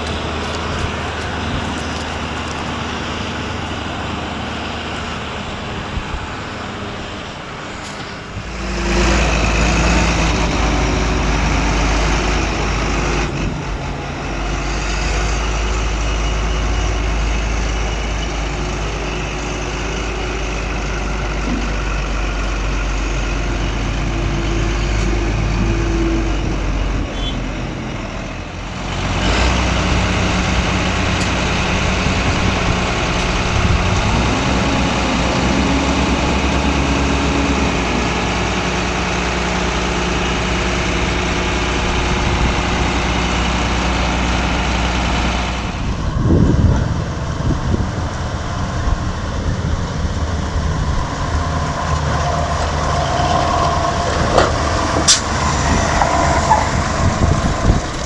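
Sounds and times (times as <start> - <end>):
heavy diesel farm machinery: 0.0 - 58.0.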